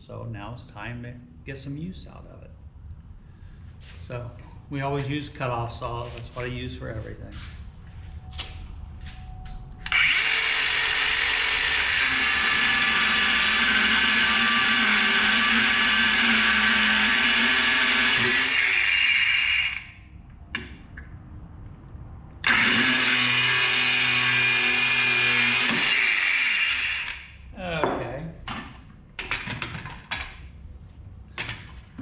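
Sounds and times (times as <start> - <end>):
angle grinder cutting steel chain: 9.9 - 19.9, 22.4 - 27.2.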